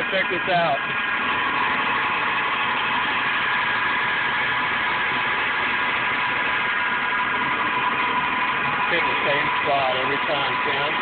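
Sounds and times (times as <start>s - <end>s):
metal lathe whirring: 0.0s - 11.0s.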